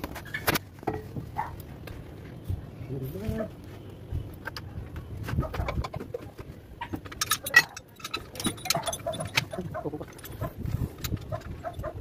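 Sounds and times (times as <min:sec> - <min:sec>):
hoist chain rattling and clinking: 0:07.0 - 0:12.0.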